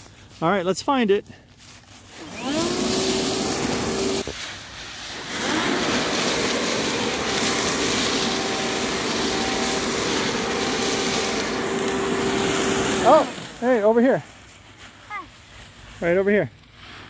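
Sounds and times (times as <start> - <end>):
leaf blower whining: 2.0 - 14.2.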